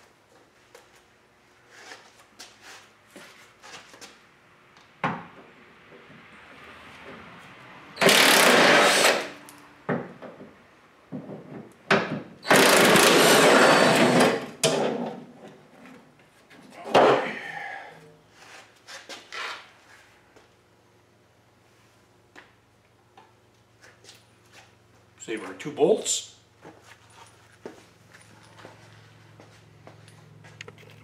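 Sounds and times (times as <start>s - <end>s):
cordless power tool whirring: 8.0s - 9.3s, 12.4s - 14.4s.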